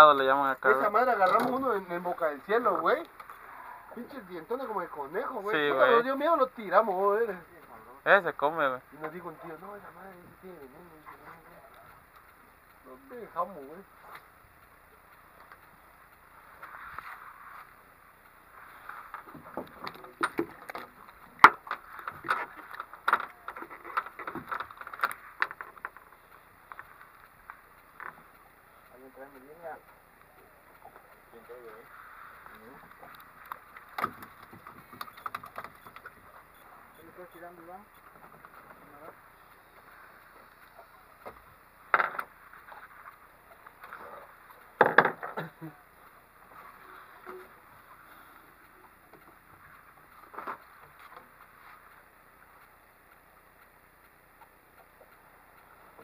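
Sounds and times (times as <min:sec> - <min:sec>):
wind: 0:00.0 - 0:56.0
water: 0:30.3 - 0:37.0.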